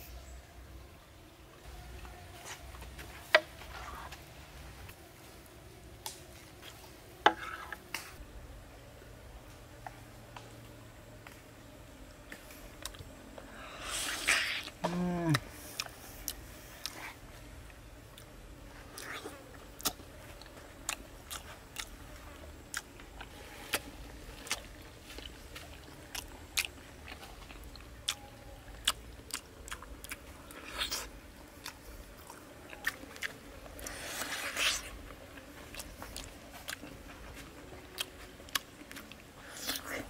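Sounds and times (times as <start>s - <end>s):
wet smacking and chewing: 18.9s - 22.0s, 22.7s - 37.0s, 37.8s - 40.0s.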